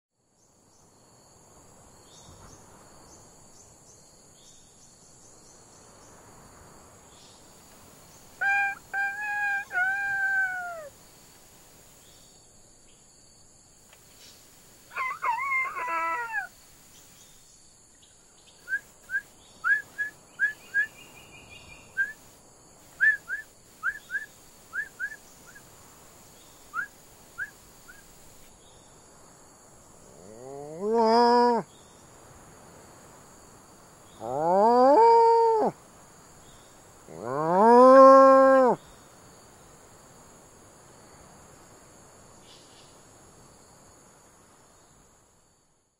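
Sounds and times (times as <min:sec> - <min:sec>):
person imitating rooster crowing: 0:08.4 - 0:10.9, 0:14.9 - 0:16.5, 0:30.2 - 0:31.6, 0:34.2 - 0:35.8, 0:37.1 - 0:38.8
person making high chirps: 0:08.4 - 0:10.9.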